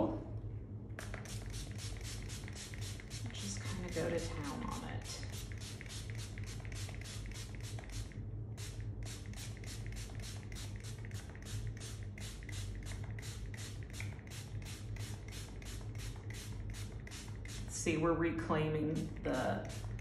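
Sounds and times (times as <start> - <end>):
steady low hum: 0.0 - 20.0
spray bottle hissing: 1.0 - 4.2, 5.2 - 17.6.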